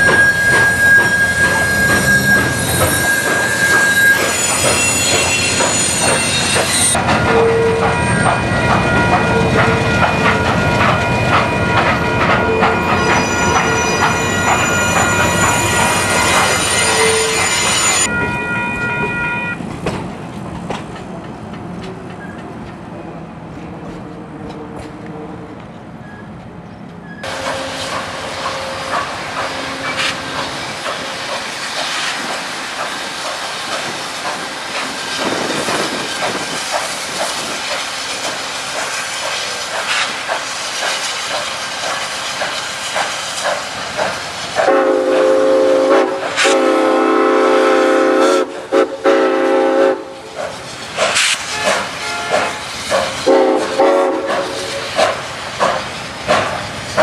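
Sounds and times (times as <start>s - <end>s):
steam whistle blasts: 0.0s - 8.0s, 12.5s - 19.6s, 44.6s - 50.2s, 51.4s - 52.6s, 53.2s - 54.6s
train wheels clattering on rails: 0.0s - 18.1s, 19.6s - 22.9s, 26.4s - 57.0s
locomotive clanking: 0.0s - 18.3s
steam hissing: 27.2s - 57.0s.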